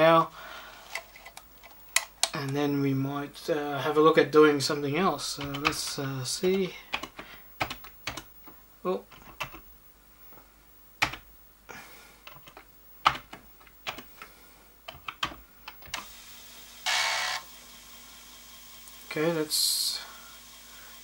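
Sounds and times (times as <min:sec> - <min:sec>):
floppy drive humming: 0:00.0 - 0:21.0
keyboard keystrokes clicking: 0:05.4 - 0:05.8, 0:06.9 - 0:08.3, 0:11.0 - 0:11.2, 0:12.3 - 0:14.1
loud whirring: 0:16.0 - 0:21.0.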